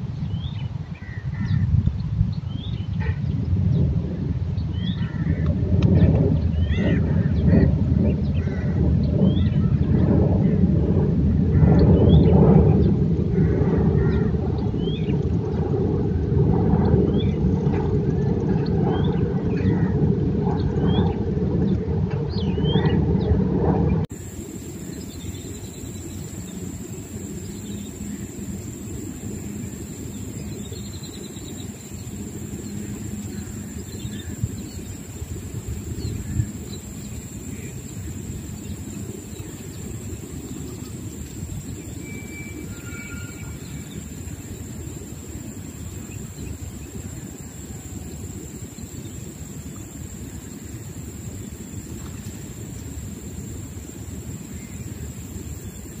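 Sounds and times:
low outdoor rumble: 0:01.1 - 0:56.0
thin high tone: 0:42.0 - 0:44.2.

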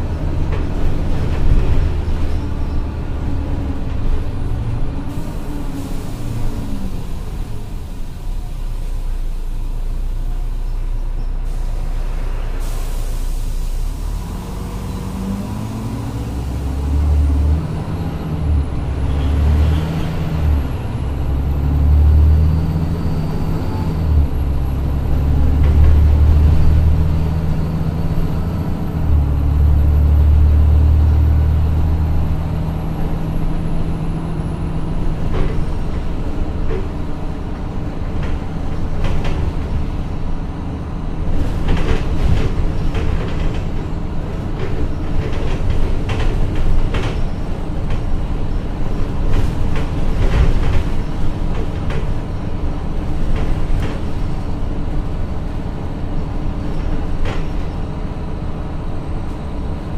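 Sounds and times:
bus diesel engine: 0:00.0 - 0:59.9
brief hiss: 0:11.4 - 0:14.0.

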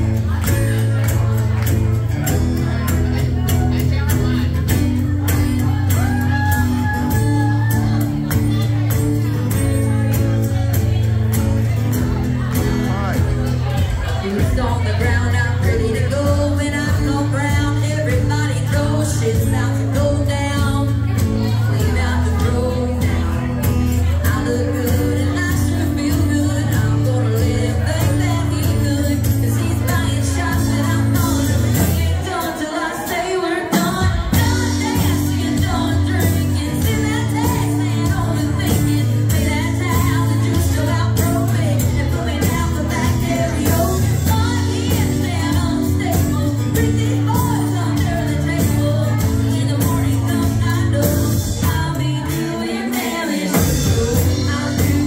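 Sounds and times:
country band playing: 0:00.0 - 0:55.0
person singing: 0:12.3 - 0:55.0.

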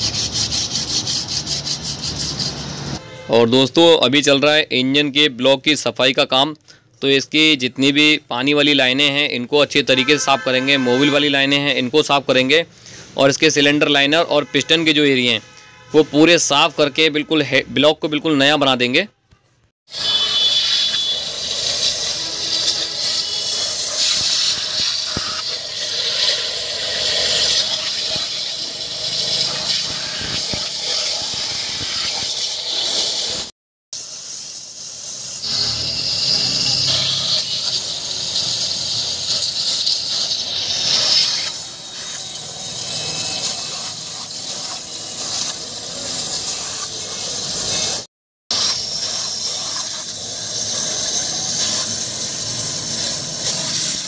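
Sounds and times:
pressure washer spray on metal: 0:00.0 - 0:03.0, 0:19.9 - 0:54.0.

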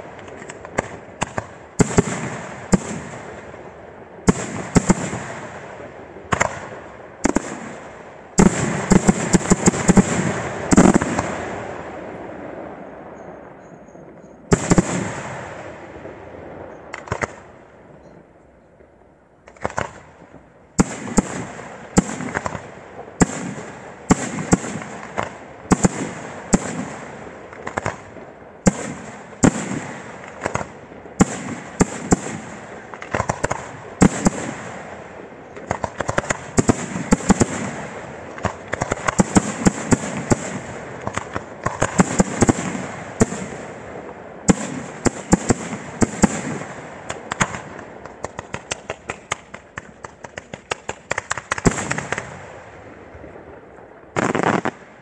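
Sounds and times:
firework crackling: 0:00.0 - 0:13.6, 0:14.5 - 0:17.8, 0:19.4 - 0:55.0
small sharp firework pops: 0:00.1 - 0:03.0, 0:16.8 - 0:17.5, 0:19.4 - 0:26.8, 0:27.5 - 0:28.1, 0:35.5 - 0:37.6, 0:47.1 - 0:52.4, 0:54.2 - 0:54.8
firework shells bursting: 0:07.3 - 0:11.4.

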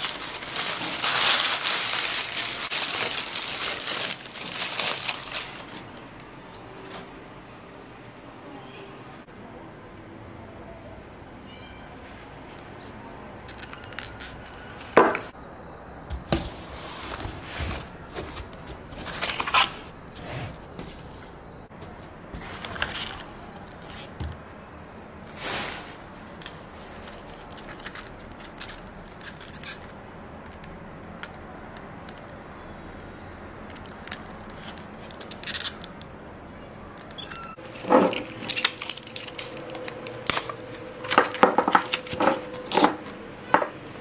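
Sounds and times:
paper and plastic crinkling: 0:00.0 - 0:07.1, 0:37.1 - 0:43.1.

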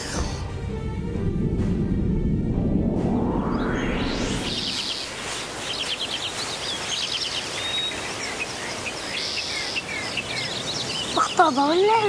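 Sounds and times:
low music: 0:00.0 - 0:05.2
rising whoosh: 0:00.6 - 0:06.0
songbirds chirping: 0:03.6 - 0:12.0
steady outdoor hiss: 0:04.4 - 0:12.0.

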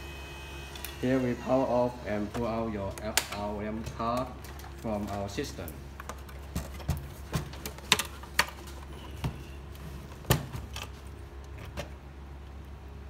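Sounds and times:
circuit boards clicking and knocking: 0:06.0 - 0:09.5.

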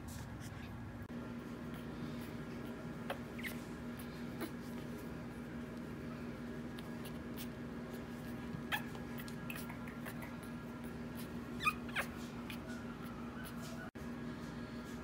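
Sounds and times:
steady low hum: 0:00.0 - 0:15.0
puppy squeaking: 0:03.0 - 0:04.6, 0:08.2 - 0:13.9.

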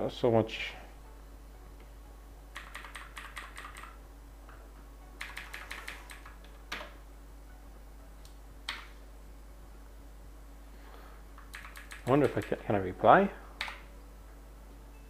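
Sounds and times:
keyboard typing: 0:02.5 - 0:04.0, 0:05.2 - 0:06.9, 0:11.4 - 0:12.6, 0:13.6 - 0:13.9
sharp keyboard clicks: 0:02.5 - 0:04.0, 0:05.2 - 0:06.9, 0:11.4 - 0:12.6, 0:13.6 - 0:13.8.

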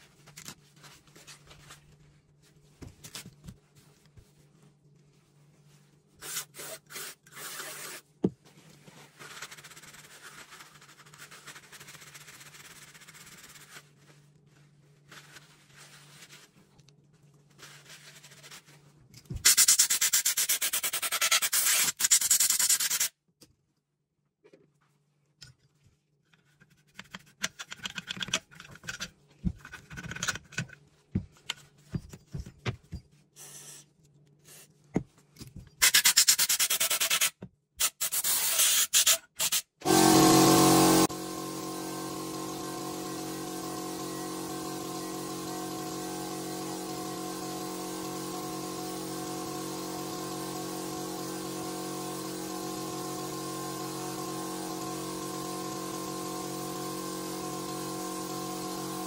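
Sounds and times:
rubbing and handling noises: 0:00.0 - 0:23.1.

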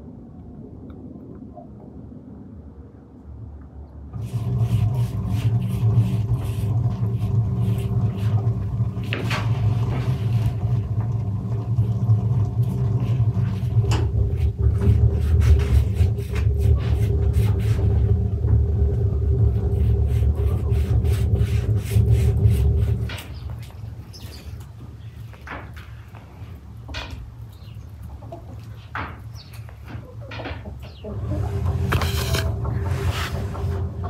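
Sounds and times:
loud low rumble: 0:00.0 - 0:24.1.

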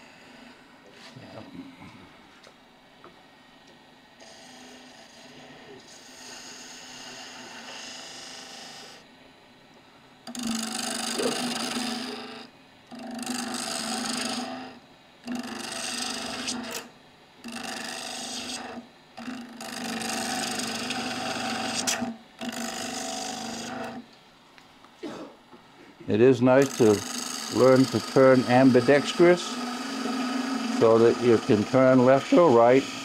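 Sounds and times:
low steady lathe hum: 0:00.0 - 0:33.0
gouge scraping wood on lathe: 0:17.5 - 0:24.0, 0:26.6 - 0:33.0.

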